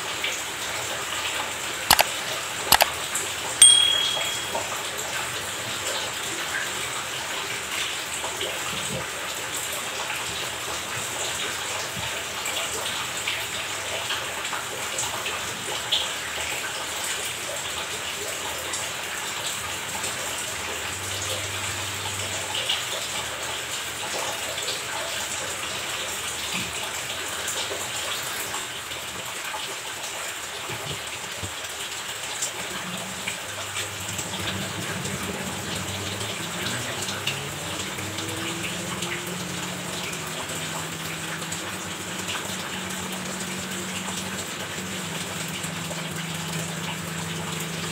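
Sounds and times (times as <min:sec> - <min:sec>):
tap water running: 0:00.0 - 0:47.9.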